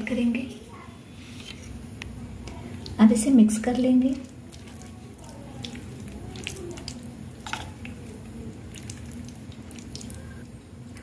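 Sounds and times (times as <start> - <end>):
spoon stirring thick batter: 3.6 - 10.4.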